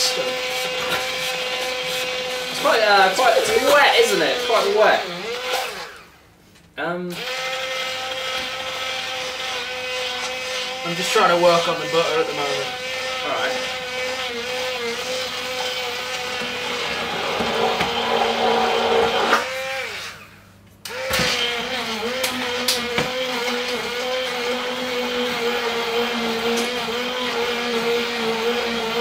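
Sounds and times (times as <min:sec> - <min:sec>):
stick blender motor whirring: 0:00.0 - 0:06.1, 0:07.2 - 0:20.3, 0:20.9 - 0:29.0.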